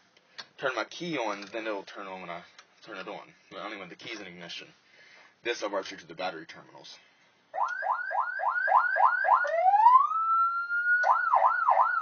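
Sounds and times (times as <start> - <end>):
electronic siren whooping and yelping: 7.5 - 12.0.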